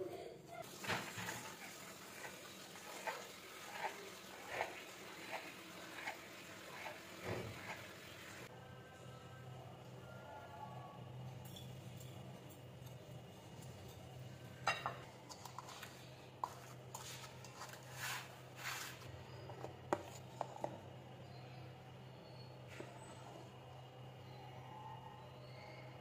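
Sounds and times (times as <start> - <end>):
crumbs scraping: 15.4 - 19.4.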